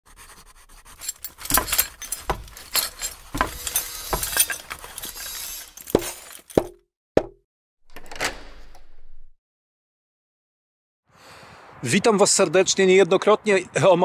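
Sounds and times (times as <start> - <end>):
sharp clinks and knocks: 0.9 - 6.8.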